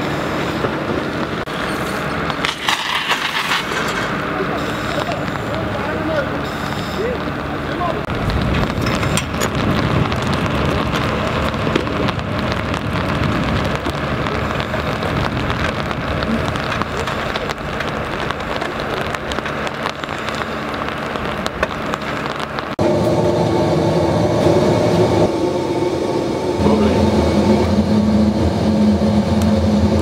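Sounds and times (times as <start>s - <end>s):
machine drone: 0.0s - 30.0s
small crackles: 0.3s - 22.8s
water falling on wet pavement: 0.7s - 22.8s.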